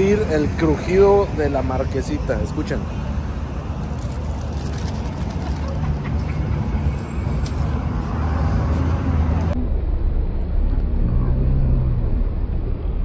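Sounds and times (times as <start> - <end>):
steady low rumble: 3.3 - 13.0.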